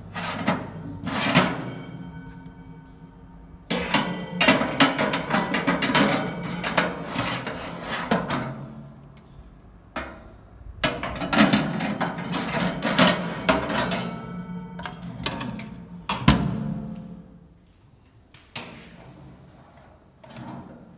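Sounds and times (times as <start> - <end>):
wire oven rack clattering: 0.2 - 2.8, 3.7 - 8.7, 10.9 - 16.2.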